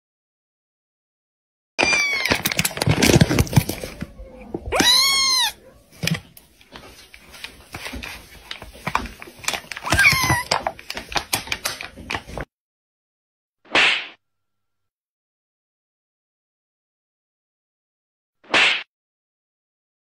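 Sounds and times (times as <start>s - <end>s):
kitten meowing: 1.8s - 2.4s, 4.1s - 5.8s, 9.8s - 10.5s
foil bag crinkling: 1.8s - 4.0s.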